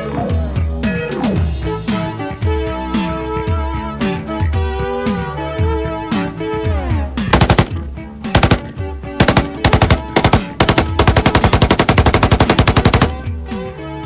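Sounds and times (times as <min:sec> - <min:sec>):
machine gun bursts: 0:07.4 - 0:07.8, 0:08.4 - 0:13.3.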